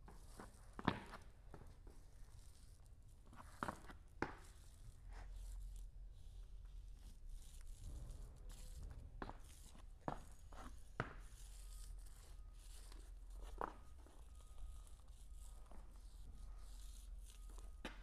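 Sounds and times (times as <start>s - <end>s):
soft footsteps: 7.7s - 18.0s.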